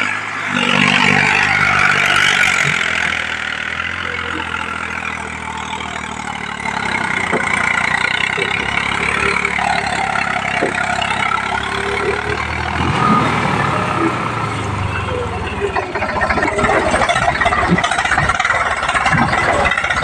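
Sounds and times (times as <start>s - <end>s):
tractor engine straining: 0.0s - 20.0s
wheels spinning in mud: 0.0s - 20.0s.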